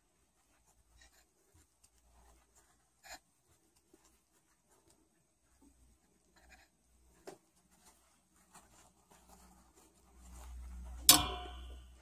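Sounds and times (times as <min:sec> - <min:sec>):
crochet hook scratching yarn: 0:00.0 - 0:12.0
sharp knock with ringing: 0:11.1 - 0:11.9.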